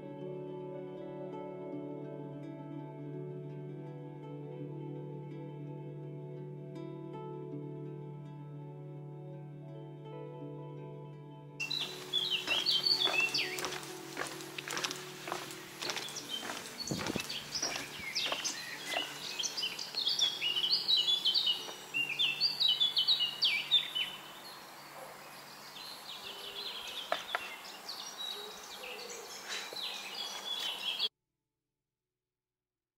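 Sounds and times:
songbirds chirping and singing: 0:11.6 - 0:31.1.

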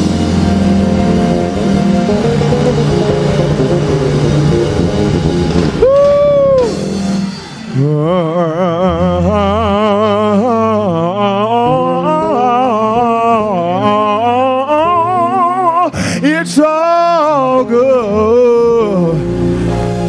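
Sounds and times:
church band music: 0:00.0 - 0:20.0
man singing gospel runs: 0:07.8 - 0:19.4.

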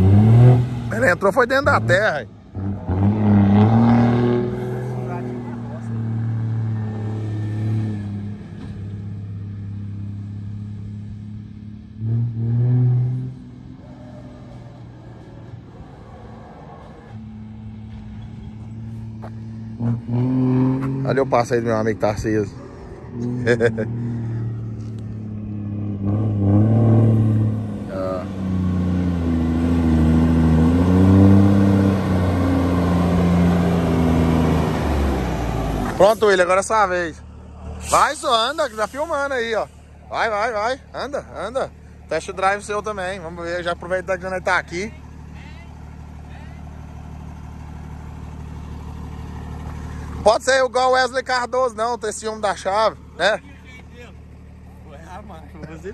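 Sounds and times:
diesel truck engine droning: 0:00.0 - 0:55.9.

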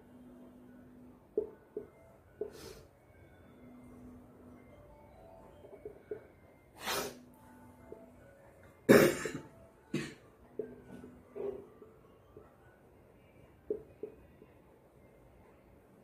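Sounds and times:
person coughing: 0:08.9 - 0:10.2.

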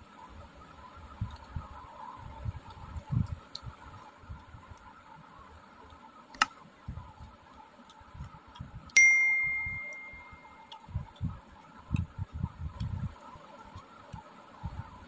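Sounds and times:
sharp click: 0:06.3 - 0:06.6
soft chewing and eating: 0:06.8 - 0:09.0, 0:09.8 - 0:15.0
bright metallic ding: 0:09.0 - 0:10.5.

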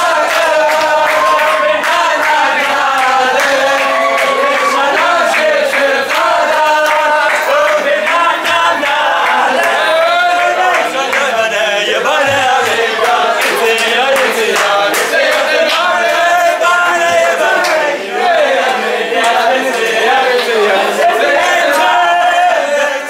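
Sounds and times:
sharp hand claps: 0:00.0 - 0:09.8, 0:12.6 - 0:16.3, 0:17.2 - 0:17.9
men singing in unison: 0:00.0 - 0:23.0.

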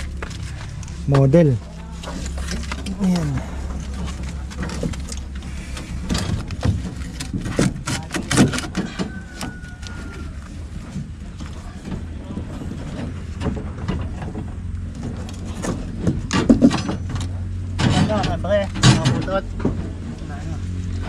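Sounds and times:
steady low hum: 0:00.0 - 0:08.4.

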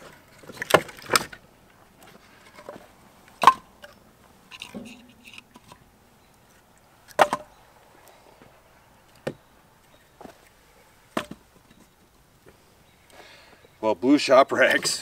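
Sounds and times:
firewood knocking: 0:11.1 - 0:11.4.

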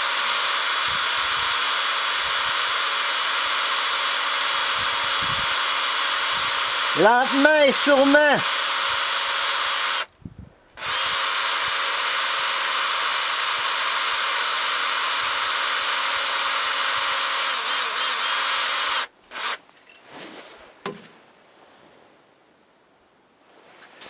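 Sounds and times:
cordless drill running: 0:00.0 - 0:10.1, 0:10.8 - 0:19.6.

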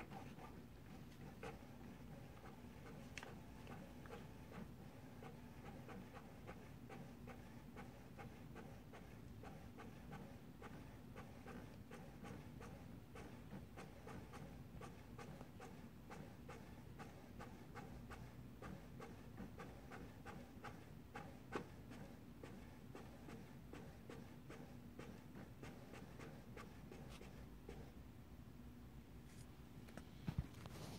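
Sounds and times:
printer ticking and clicking: 0:00.0 - 0:27.9.

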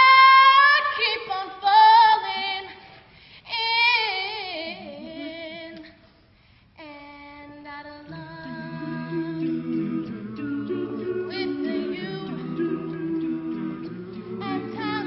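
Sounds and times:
woman singing unaccompanied: 0:00.0 - 0:02.9, 0:03.5 - 0:06.0, 0:06.8 - 0:15.0.

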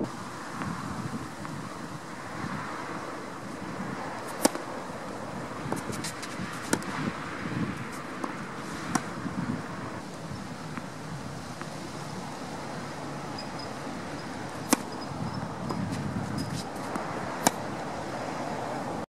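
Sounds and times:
wind noise on microphone: 0:00.0 - 0:19.0
tennis ball hits and bounces: 0:01.4 - 0:01.6, 0:03.4 - 0:09.6, 0:10.2 - 0:11.0, 0:11.6 - 0:11.8, 0:13.3 - 0:17.7.

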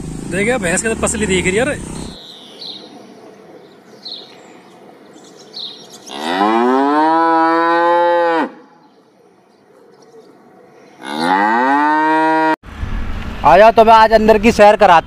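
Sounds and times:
water buffalo lowing: 0:10.9 - 0:12.6.

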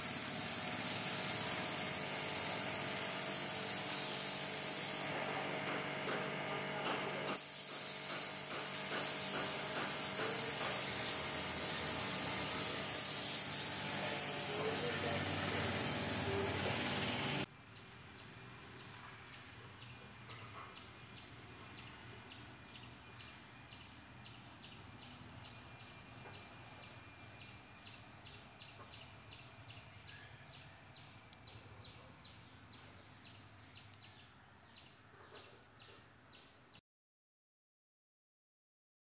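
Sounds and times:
high insect drone: 0:07.4 - 0:35.1.

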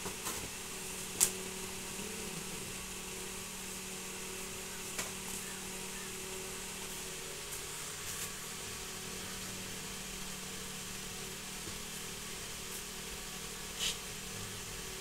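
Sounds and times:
motor-like hum: 0:00.0 - 0:15.0
short sharp hiss: 0:13.8 - 0:14.1.

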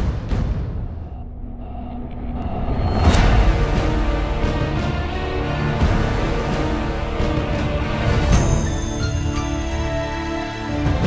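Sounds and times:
low cinematic rumble: 0:00.7 - 0:08.0.

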